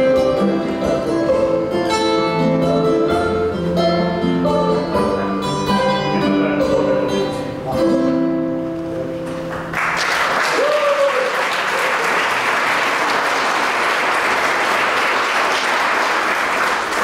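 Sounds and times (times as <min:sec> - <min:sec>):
audience applauding: 0:09.4 - 0:17.0.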